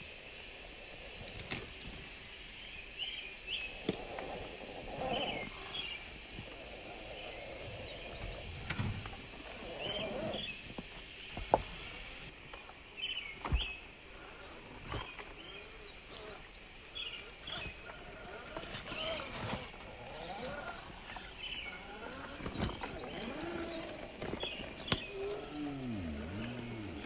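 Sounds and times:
bird chirping: 0:02.6 - 0:27.0
toy car motor whirring: 0:18.3 - 0:24.2.

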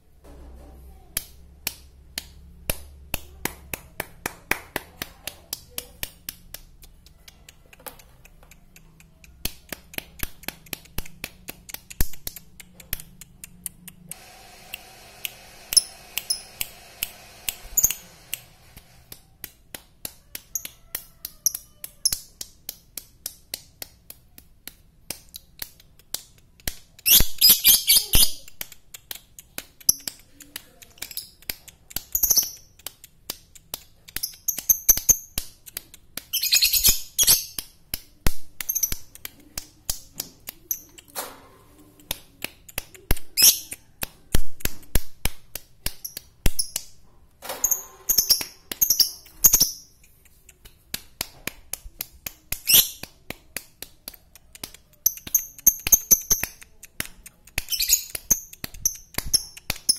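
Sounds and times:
lovebird chirping: 0:27.1 - 0:28.5, 0:36.4 - 0:37.6, 0:57.7 - 0:59.9.

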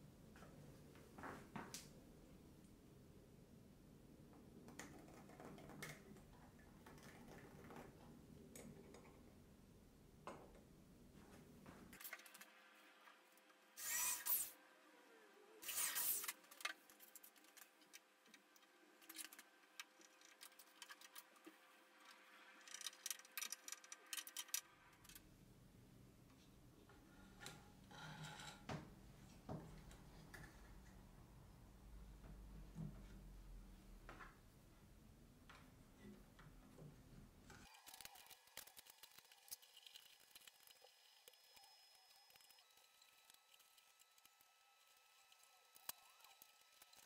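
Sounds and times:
electric drill boring into wood: 0:13.8 - 0:14.5.

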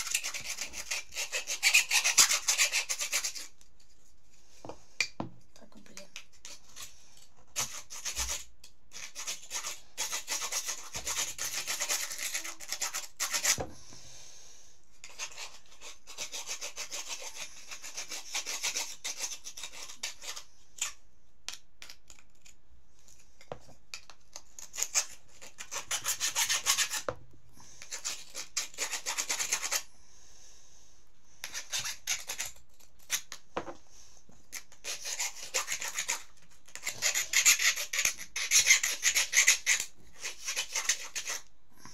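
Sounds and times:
metal file rasping: 0:00.0 - 0:03.6, 0:24.7 - 0:27.1, 0:34.5 - 0:41.5.

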